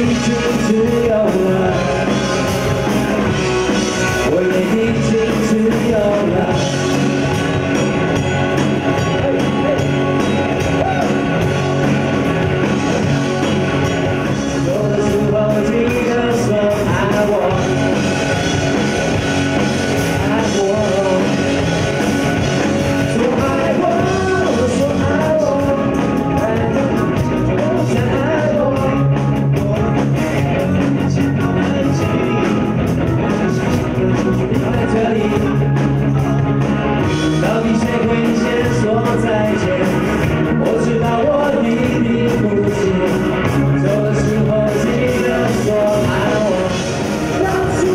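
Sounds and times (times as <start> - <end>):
pop-rock band playing: 0.0 - 47.9
people singing: 23.0 - 32.4, 37.3 - 47.9.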